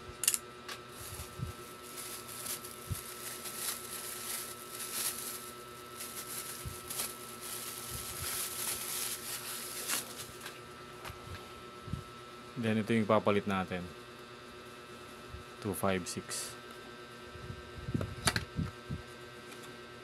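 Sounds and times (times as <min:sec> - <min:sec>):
faint electrical hum: 0:00.0 - 0:20.0
soft rustling of packaging: 0:00.9 - 0:10.6.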